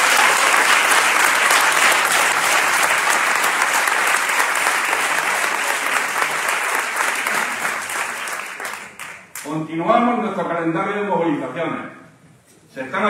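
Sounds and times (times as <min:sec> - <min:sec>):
large audience clapping: 0:00.0 - 0:09.5.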